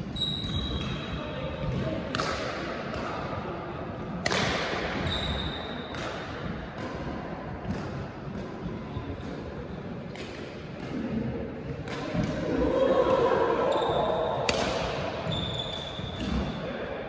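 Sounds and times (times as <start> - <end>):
brief high squeak: 0.1 - 1.1, 15.3 - 16.2
rackets hitting shuttlecock: 0.4 - 3.4, 4.0 - 13.4, 14.0 - 16.6.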